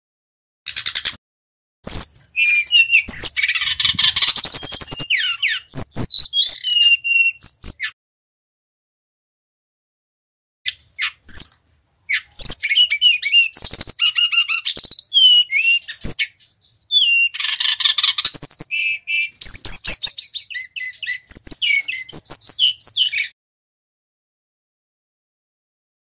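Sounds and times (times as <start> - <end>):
bird singing: 1.8 - 8.0, 10.7 - 23.4.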